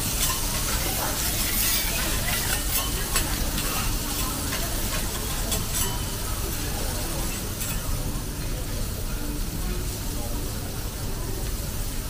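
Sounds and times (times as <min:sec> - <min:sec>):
metal spatulas scraping: 0:00.0 - 0:08.0
food sizzling on a griddle: 0:00.0 - 0:12.0.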